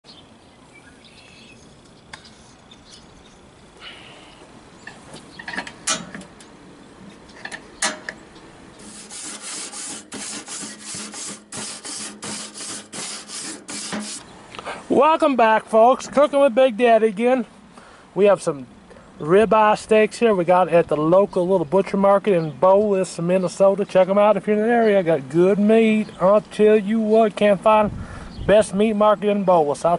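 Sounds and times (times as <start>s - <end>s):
grill brush scraping metal grates: 8.8s - 14.3s.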